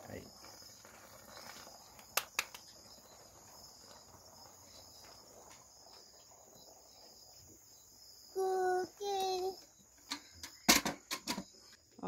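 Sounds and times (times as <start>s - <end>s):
crickets chirring: 0.0s - 12.0s.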